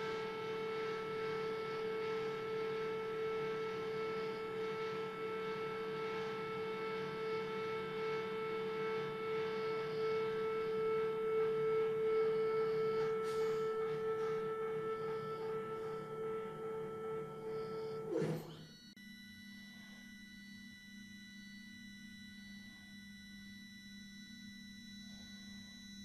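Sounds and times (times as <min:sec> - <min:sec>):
stepper motors whining: 0:00.0 - 0:19.0.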